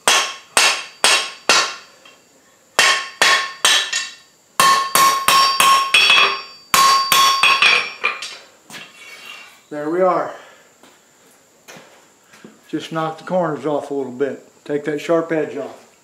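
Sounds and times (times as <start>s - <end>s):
hammer striking metal on anvil: 0.0s - 2.2s, 2.8s - 8.3s.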